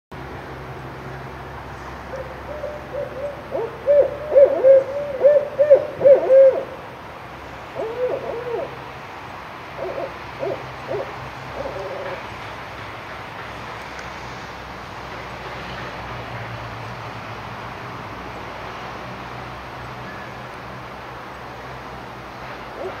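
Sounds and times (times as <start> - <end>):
owls hooting: 2.1 - 6.8, 7.8 - 8.8, 9.8 - 12.2.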